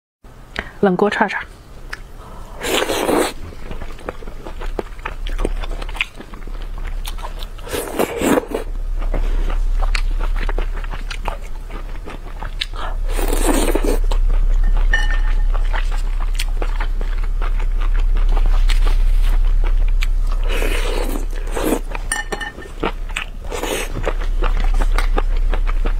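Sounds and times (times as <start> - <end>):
steady low hum: 0.3 - 25.9
crunchy bites and wet chewing: 1.9 - 22.1, 22.7 - 25.9
loud slurps: 2.6 - 3.7, 13.0 - 14.1.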